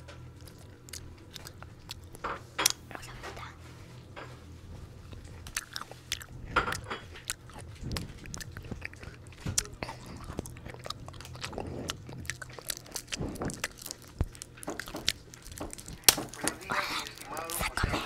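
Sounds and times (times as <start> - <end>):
low hum: 0.0 - 18.0
wet chewing: 0.0 - 18.0
crisp bites: 5.1 - 17.9.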